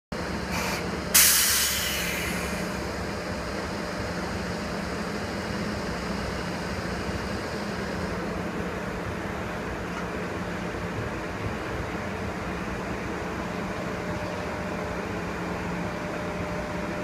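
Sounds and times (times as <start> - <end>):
electric locomotive humming: 0.2 - 17.0
compressed air hiss: 0.5 - 2.7.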